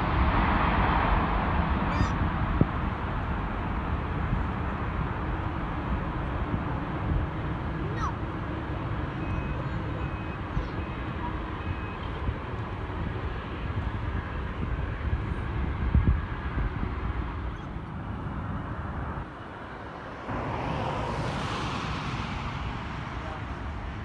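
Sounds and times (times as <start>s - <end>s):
jet engines roaring: 0.0s - 24.0s
wind buffeting microphone: 0.0s - 24.0s
short beeps: 9.2s - 12.0s.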